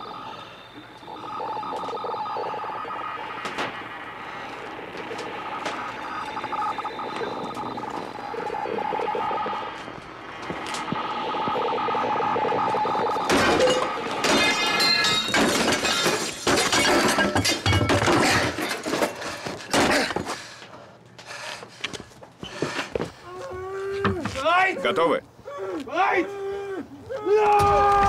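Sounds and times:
glass shattering: 13.3s - 19.0s.

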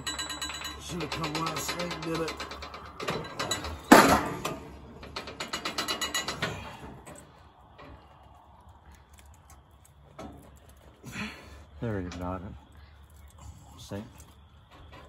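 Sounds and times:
sharp metal clank: 0.0s - 6.7s.

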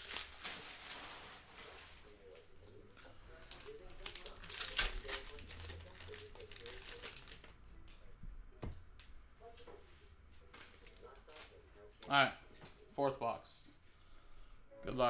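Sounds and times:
wrapper crinkling and rustling: 0.0s - 8.0s, 10.6s - 11.6s.

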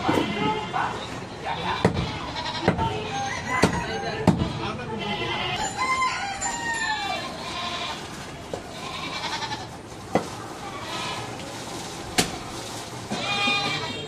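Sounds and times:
goats bleating: 0.0s - 1.0s, 1.6s - 2.7s, 4.4s - 5.7s, 6.9s - 9.7s, 10.6s - 11.3s, 13.1s - 14.0s
market background noise: 0.0s - 14.0s.

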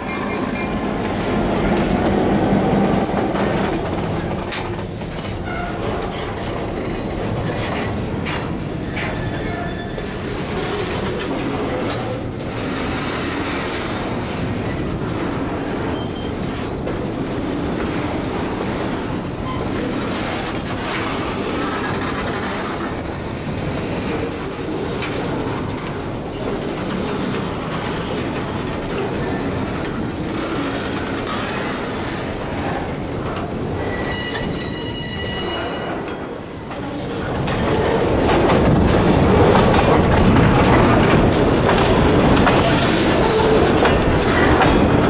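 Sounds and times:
diesel locomotive engine: 0.0s - 45.0s
train wheels clanking over rails: 0.0s - 45.0s
metallic squeals: 33.7s - 36.2s.

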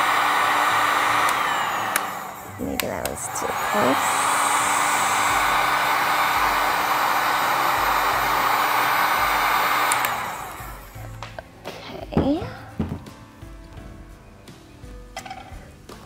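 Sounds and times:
heat gun blowing air: 0.0s - 11.0s.

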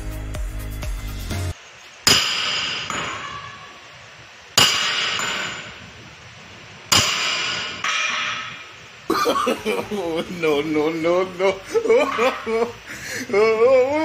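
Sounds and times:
sledgehammer clanging on steel: 4.6s - 5.8s, 6.9s - 8.6s.

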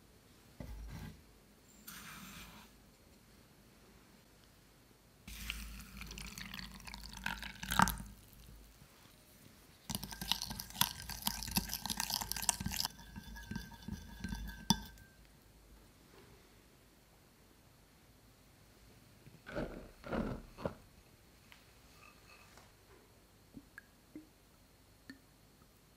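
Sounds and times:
hot water pouring into glass bowl: 5.3s - 8.8s, 9.9s - 15.1s
wooden stick clinking against glass: 9.9s - 15.2s.

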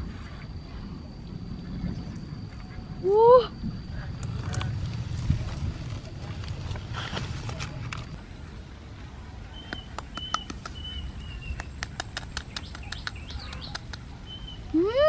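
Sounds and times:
small birds chirping: 9.4s - 14.8s
sharp ticks: 9.6s - 10.9s, 11.5s - 14.1s.

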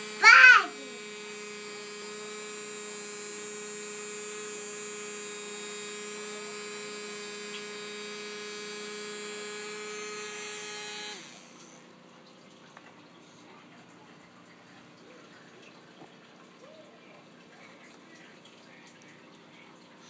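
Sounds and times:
small electric motor humming: 0.0s - 12.1s.

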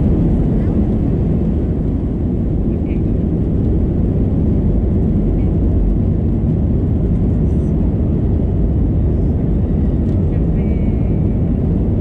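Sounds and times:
jet engine noise in cabin: 0.0s - 12.0s.

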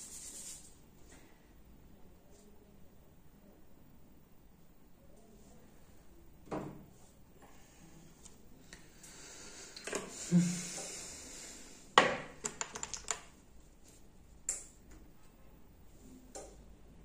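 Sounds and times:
soft rustling hiss: 13.2s - 16.7s.

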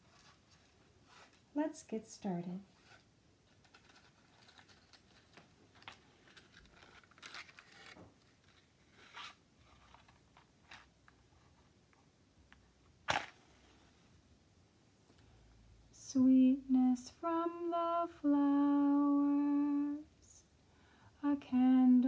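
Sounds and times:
handling rustling and clicks: 2.8s - 11.3s.

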